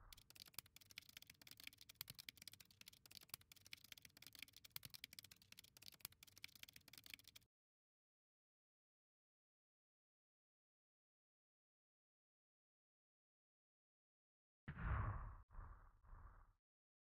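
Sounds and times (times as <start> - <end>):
keyboard typing: 0.0 - 7.4.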